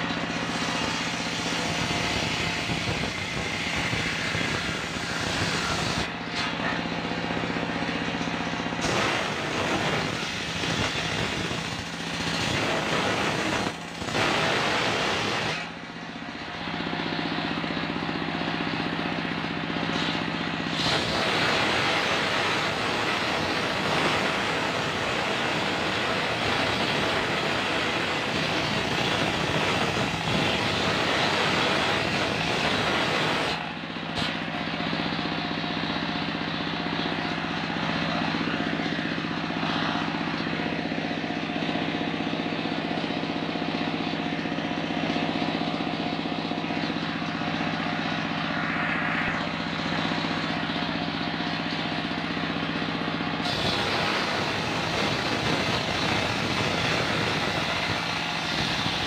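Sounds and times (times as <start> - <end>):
engine running: 0.0 - 59.0
circular saw ripping log: 0.3 - 6.7, 8.7 - 15.8, 19.9 - 34.6, 53.4 - 59.0.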